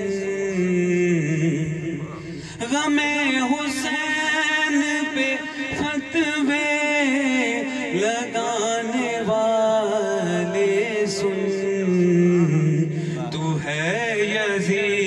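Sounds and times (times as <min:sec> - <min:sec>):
man chanting devotional verse: 0:00.0 - 0:15.0.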